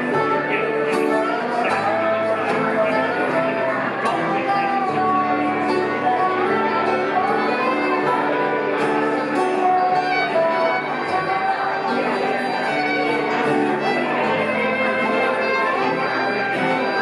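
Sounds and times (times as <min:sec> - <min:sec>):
fiddle bowed melody: 0:00.0 - 0:17.0
picked banjo: 0:00.0 - 0:17.0
strummed acoustic guitar: 0:00.0 - 0:17.0.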